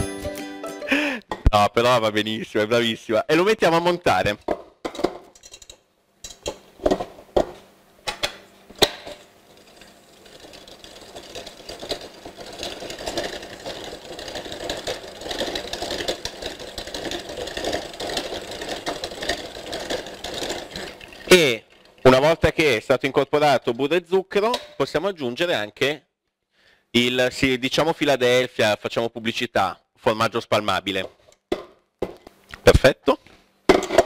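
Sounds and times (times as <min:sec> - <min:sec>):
stand mixer motor running: 0:10.1 - 0:21.3.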